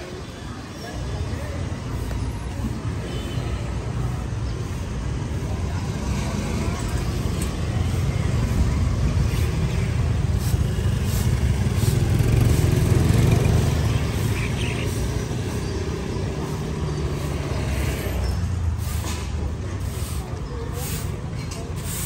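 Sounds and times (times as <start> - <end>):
motorbike engines passing: 0.0 - 22.0.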